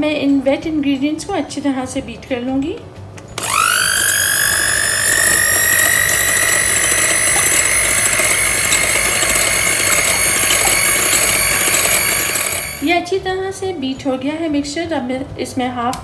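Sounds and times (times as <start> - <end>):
electric hand mixer whining: 3.4 - 12.9.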